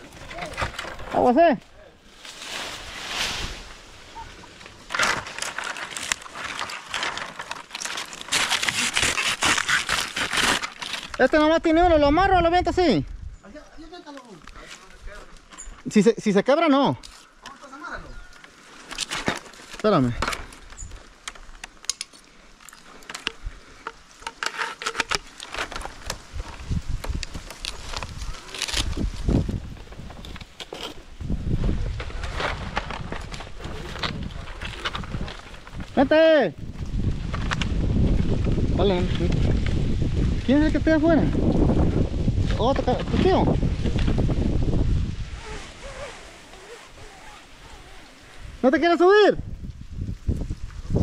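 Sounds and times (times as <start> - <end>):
dry palm fronds rustling: 0.0 - 51.0.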